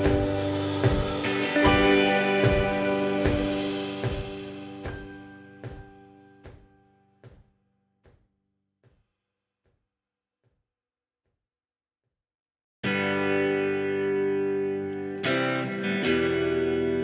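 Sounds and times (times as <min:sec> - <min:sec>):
instrumental music with drum beat: 0:00.0 - 0:06.7.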